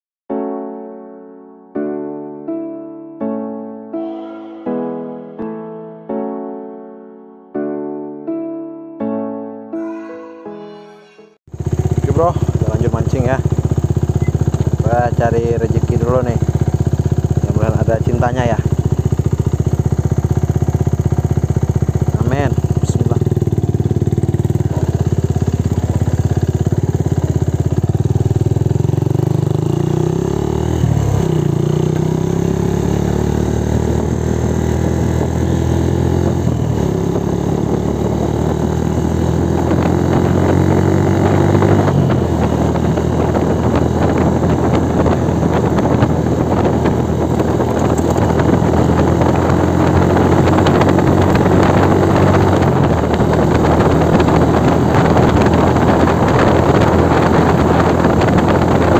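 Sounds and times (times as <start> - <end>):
motorcycle engine accelerating: 11.5 - 58.9
wind on microphone: 36.2 - 58.9.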